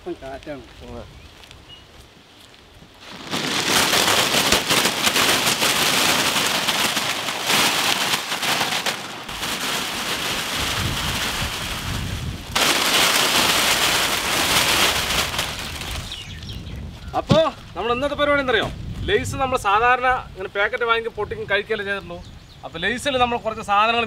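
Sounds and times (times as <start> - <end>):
plastic chip bags crackling: 3.0 - 16.6.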